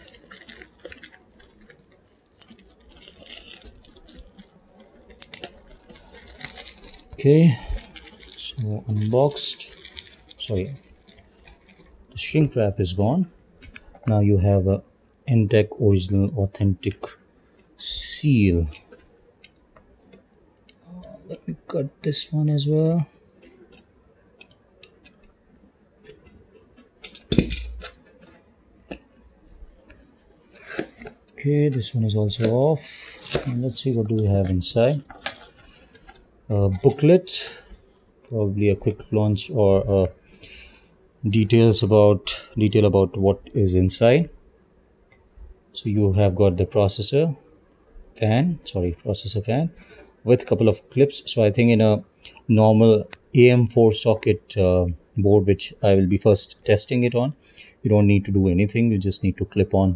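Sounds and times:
plastic wrap crinkling: 0:00.0 - 0:14.1, 0:17.8 - 0:21.6, 0:26.0 - 0:42.4.

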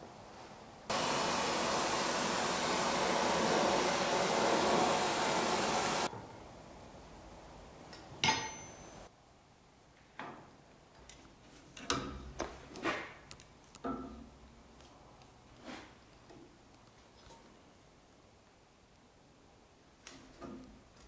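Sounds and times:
gas torch flame hissing: 0:00.9 - 0:06.1
metallic clank on anvil: 0:08.2 - 0:09.0.

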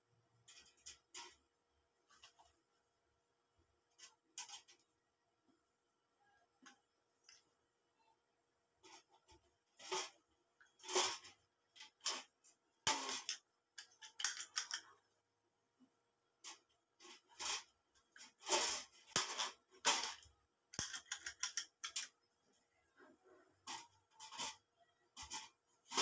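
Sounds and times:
hand tools scraping sheet metal: 0:23.7 - 0:26.0.

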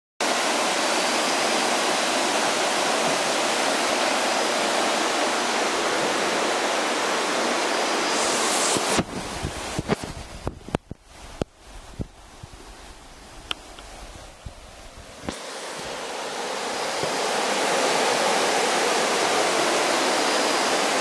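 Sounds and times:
dense rushing noise: 0:00.3 - 0:13.4.

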